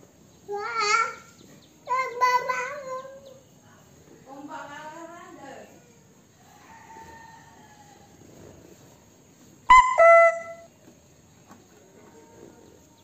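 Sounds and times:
car horn honking: 9.7 - 10.7.

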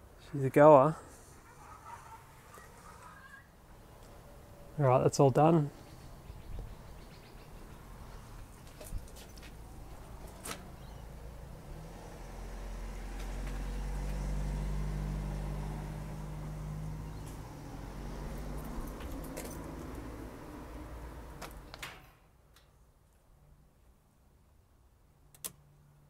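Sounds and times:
vehicle passing: 0.8 - 4.8, 9.4 - 21.7.

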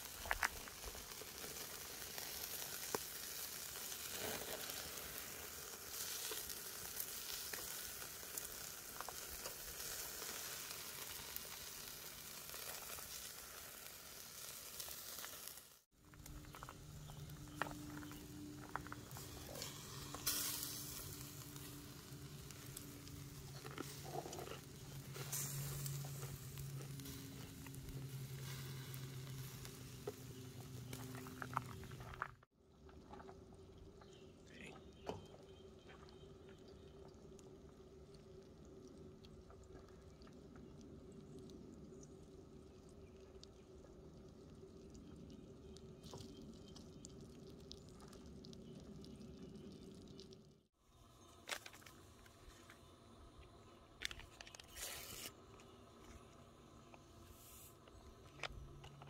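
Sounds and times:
steak sizzling in a pan: 0.0 - 15.9, 19.1 - 24.2
low steady hum: 16.0 - 47.4.

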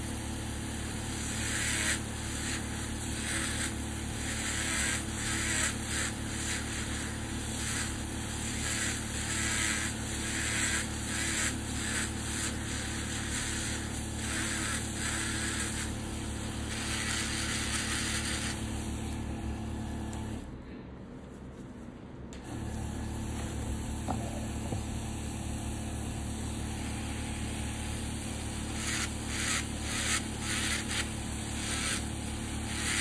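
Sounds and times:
drill motor hum: 0.8 - 20.5, 22.4 - 33.0
nail drill grinding toenail: 1.2 - 18.9, 28.6 - 33.0.

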